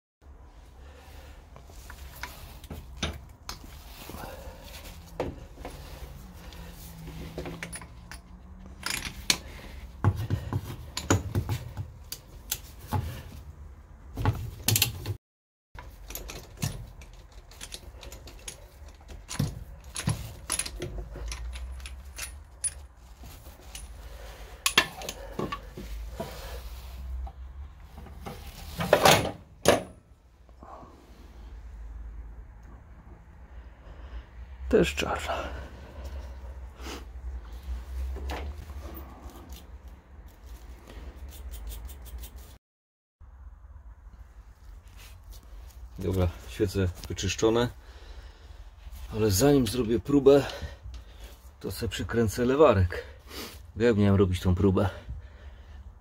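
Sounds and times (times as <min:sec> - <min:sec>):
tools clinking on engine parts: 0:07.2 - 0:09.6, 0:15.8 - 0:25.8.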